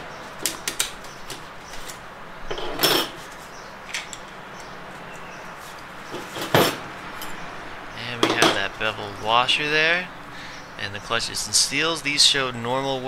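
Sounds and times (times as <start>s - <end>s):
metal parts clinking: 6.2s - 7.4s.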